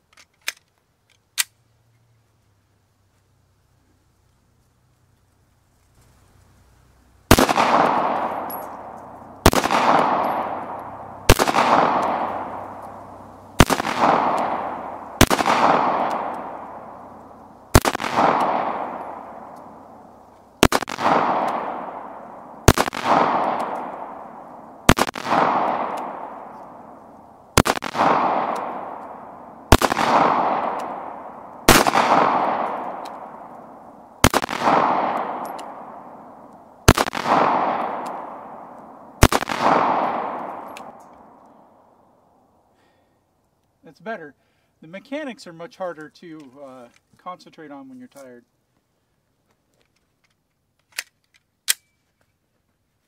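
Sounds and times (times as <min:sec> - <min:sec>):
pistol shots with echo: 0:07.3 - 0:20.0, 0:20.6 - 0:41.9.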